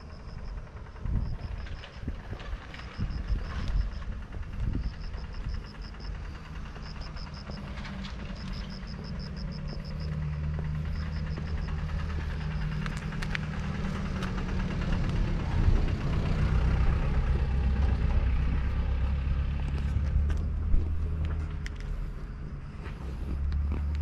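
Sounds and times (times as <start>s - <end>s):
vehicle engine humming: 0.0s - 24.0s
sharp clicks: 8.4s - 15.2s.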